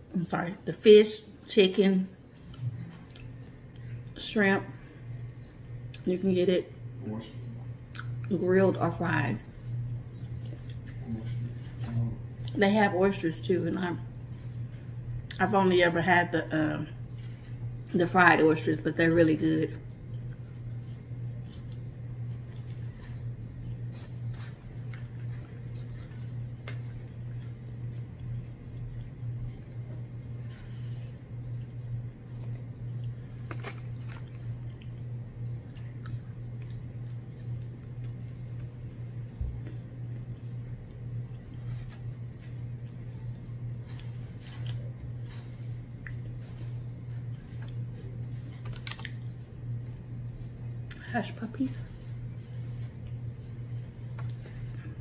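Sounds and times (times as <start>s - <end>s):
steady low hum: 0.0s - 55.0s
person chewing food: 2.4s - 4.2s, 9.8s - 12.6s, 20.0s - 50.0s.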